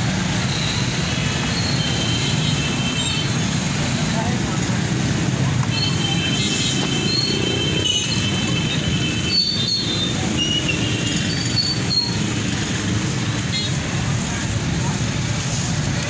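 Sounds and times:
rumble of traffic and crowd: 0:00.0 - 0:16.0
short high squeaks: 0:09.2 - 0:12.4.

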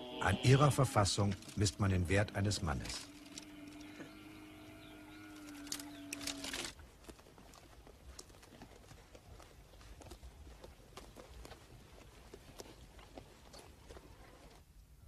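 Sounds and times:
low animal call: 0:00.0 - 0:06.8
twigs and brush rustling: 0:01.2 - 0:04.2, 0:04.8 - 0:14.6.

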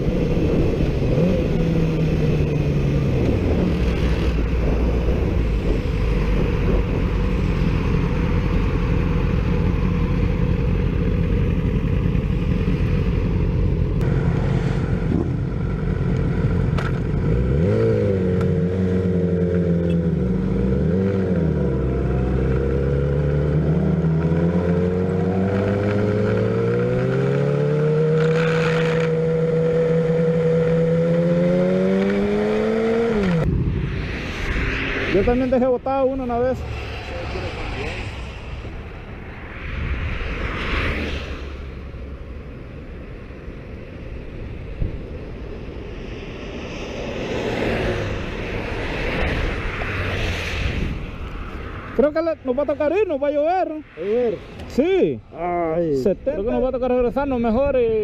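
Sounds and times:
wind noise on microphone: 0:00.0 - 0:08.4, 0:44.5 - 0:52.0.

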